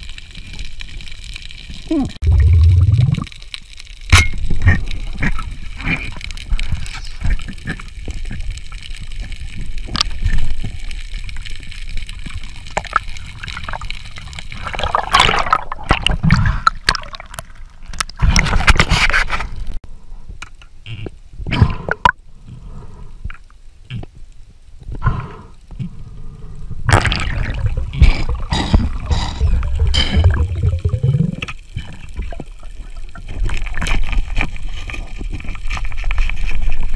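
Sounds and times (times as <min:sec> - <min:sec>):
water gurgling underwater: 0:01.7 - 0:03.4, 0:12.1 - 0:18.7, 0:26.8 - 0:34.2.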